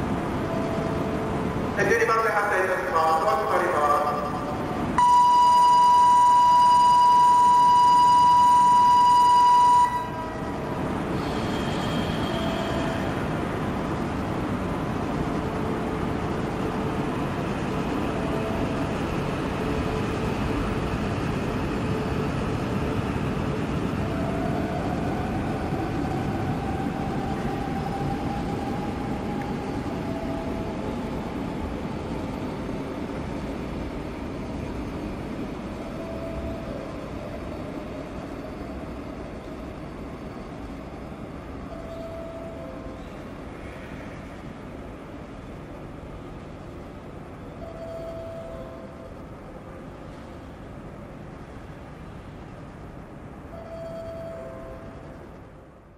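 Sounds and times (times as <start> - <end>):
electronic warning tone: 4.1 - 10.6
train running rumble: 9.9 - 43.6.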